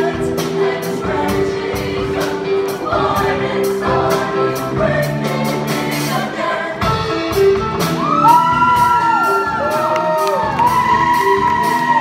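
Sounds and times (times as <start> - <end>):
choir singing with band: 0.0 - 12.0
drum kit steady beat: 0.0 - 12.0
audience whooping: 7.9 - 12.0.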